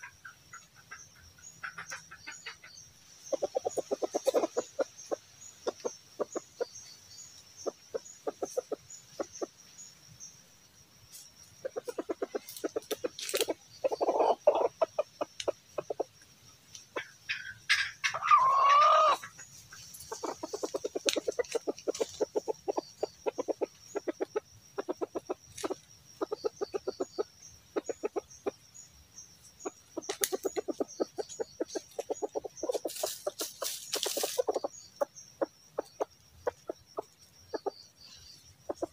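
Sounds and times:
rooster clucking: 0.0s - 6.8s, 11.6s - 16.2s, 16.9s - 28.6s, 29.6s - 37.8s, 38.7s - 38.9s
rooster crowing: 18.1s - 19.3s.

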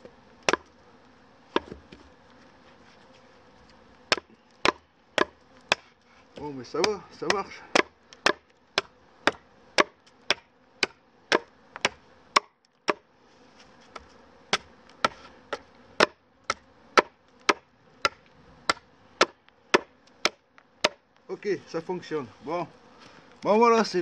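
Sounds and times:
knife chopping wood: 0.4s - 0.7s, 1.5s - 2.0s, 4.1s - 13.0s, 13.9s - 21.0s.

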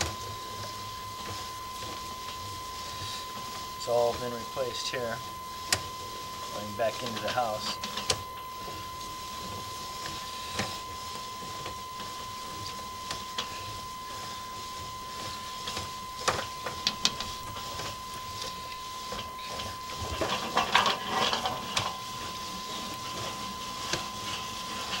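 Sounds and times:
high electronic tone: 0.0s - 25.0s.

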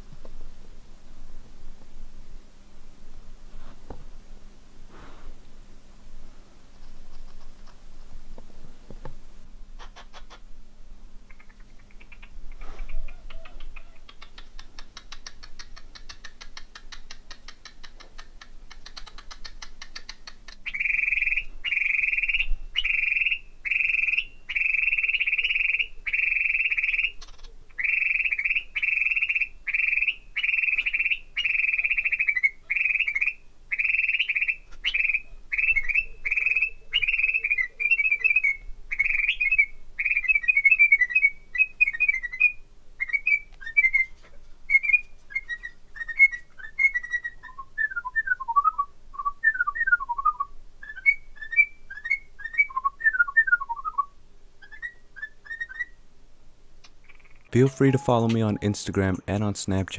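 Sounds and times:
cockatiel chirps: 9.8s - 10.4s, 11.3s - 48.7s, 49.4s - 56.0s
soft fast ticking: 13.4s - 20.6s
cockatiel whistling: 27.8s - 56.0s.

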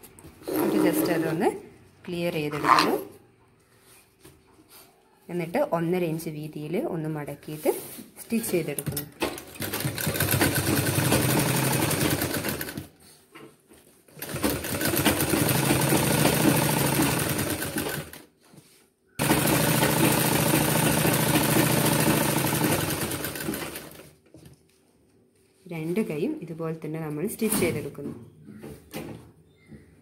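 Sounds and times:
sewing machine running: 9.4s - 12.9s, 14.2s - 18.2s, 19.2s - 24.1s.

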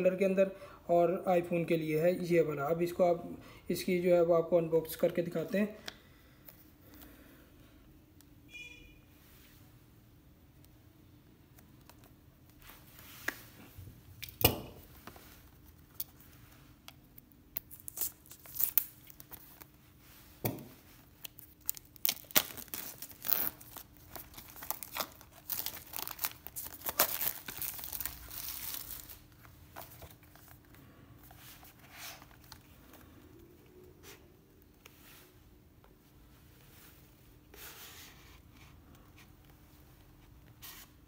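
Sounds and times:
plastic wrap tearing and crinkling: 17.2s - 19.8s, 21.0s - 29.4s.

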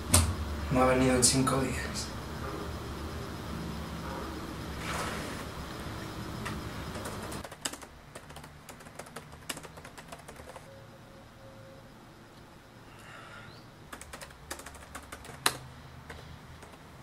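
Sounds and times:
low steady hum: 0.0s - 17.0s
typing on laptop keyboard: 6.4s - 10.7s, 13.9s - 16.9s.

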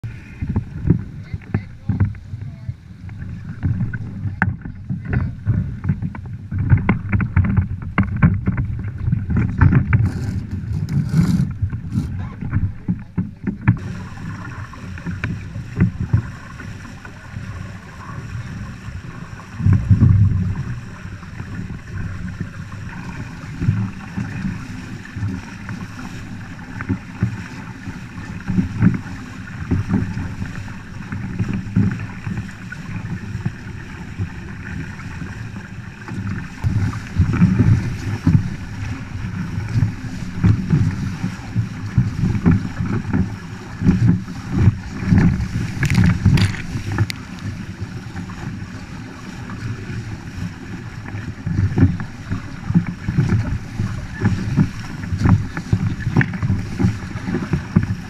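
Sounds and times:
water rushing along hull: 0.0s - 58.0s
wind buffeting microphone: 0.0s - 58.0s
sharp clicks and knocks: 45.2s - 47.2s.

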